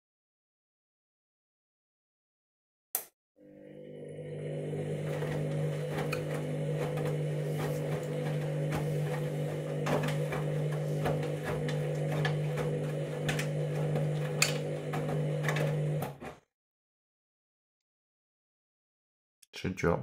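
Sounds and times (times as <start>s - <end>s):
washing machine motor hum: 3.4s - 16.4s
washing machine clicks and knocks: 5.0s - 16.2s.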